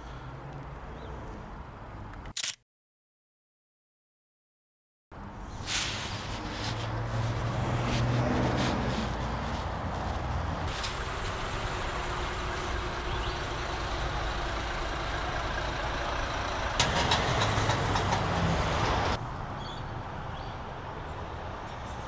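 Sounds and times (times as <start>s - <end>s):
road traffic: 0.0s - 2.6s, 5.1s - 22.0s
heavy vehicle passing: 5.2s - 19.3s.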